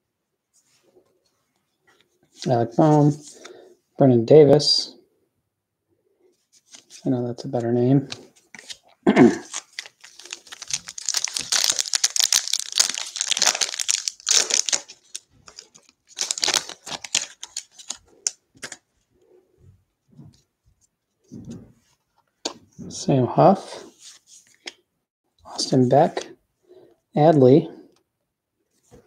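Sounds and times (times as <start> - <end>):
faint handling sounds: 0.4 - 3.8, 6.2 - 22.8
foil wrapper tearing and crinkling: 9.4 - 18.0.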